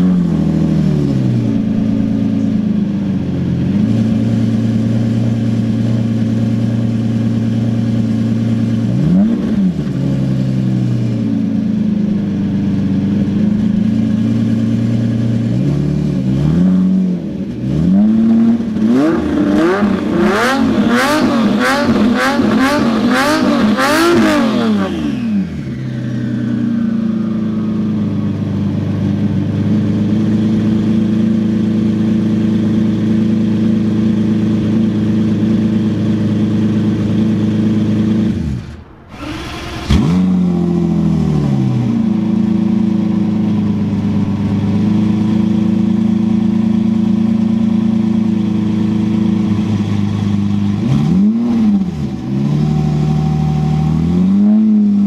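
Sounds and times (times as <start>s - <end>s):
car engine idling and revving: 0.0s - 55.0s
exhaust pops: 38.2s - 42.3s.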